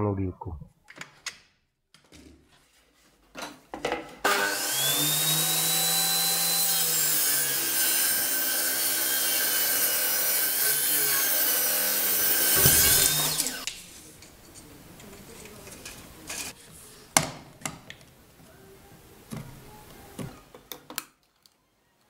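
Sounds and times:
table saw cutting wood: 0:04.2 - 0:13.7.

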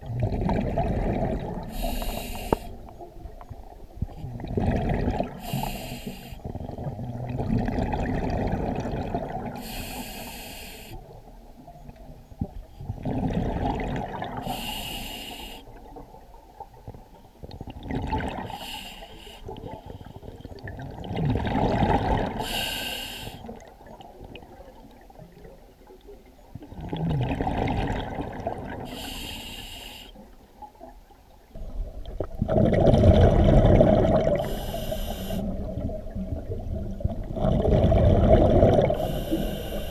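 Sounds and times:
regulator hissing inhales: 0:01.7 - 0:02.8, 0:05.4 - 0:06.4, 0:09.6 - 0:11.0, 0:14.4 - 0:15.7, 0:18.5 - 0:20.1, 0:22.4 - 0:23.5, 0:28.9 - 0:30.2, 0:34.4 - 0:35.5, 0:39.0 - 0:39.9
exhaust bubbles rumbling: 0:32.0 - 0:34.4, 0:35.5 - 0:39.0.

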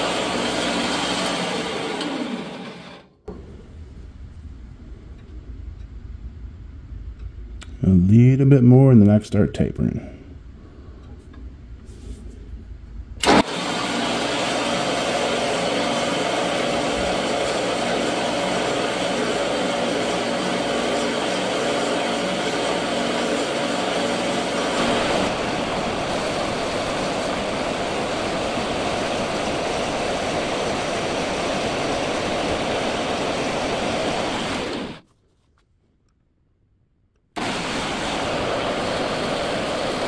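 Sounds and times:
drill whirring: 0:00.0 - 0:03.1, 0:13.2 - 0:35.0.

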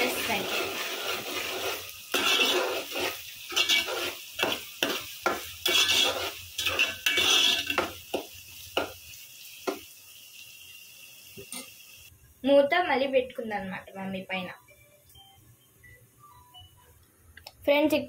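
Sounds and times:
spatula scraping a pot: 0:00.0 - 0:09.0
onions sizzling in oil: 0:00.0 - 0:14.5.

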